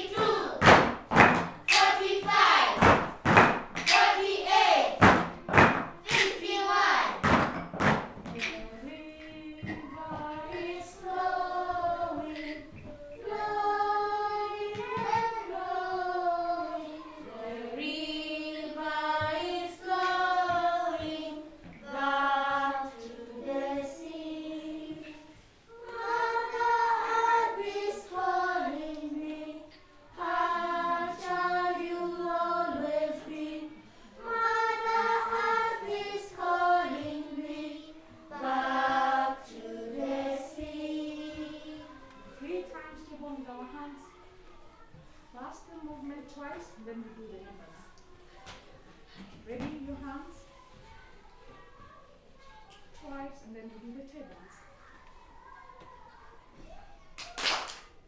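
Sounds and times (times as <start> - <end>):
children singing: 0.0 - 3.2, 3.8 - 7.6, 8.2 - 42.4
hand claps: 0.6 - 4.3, 4.9 - 6.4, 7.2 - 8.6, 57.2 - 58.0
woman singing: 8.3 - 11.1.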